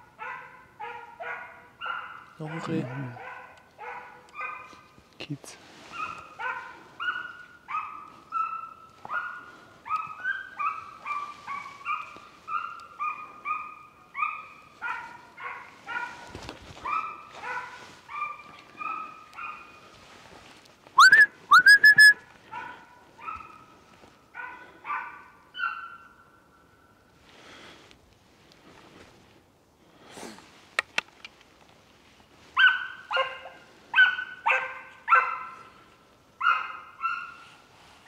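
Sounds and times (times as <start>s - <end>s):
dog yelping bays: 5.9s - 16.1s, 21.0s - 23.6s, 32.6s - 35.6s
loud high dog cries: 21.0s - 22.1s.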